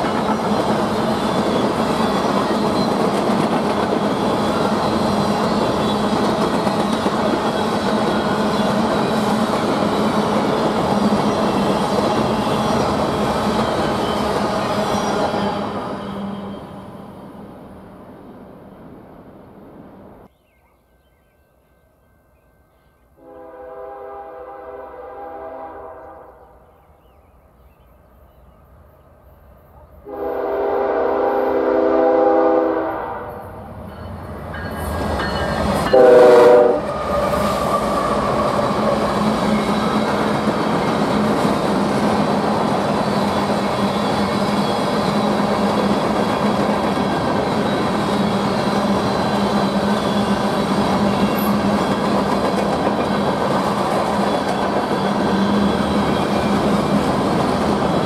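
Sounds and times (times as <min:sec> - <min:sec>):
freight cars rumbling on rails: 0:00.0 - 0:20.2, 0:33.0 - 0:58.0
locomotive air horn blasts: 0:23.2 - 0:26.4, 0:30.1 - 0:33.4, 0:35.9 - 0:37.6.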